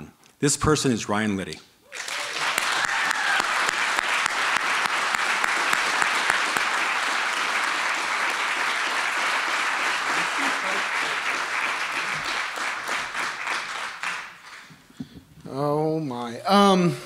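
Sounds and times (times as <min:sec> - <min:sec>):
audience applauding: 0:01.9 - 0:14.9.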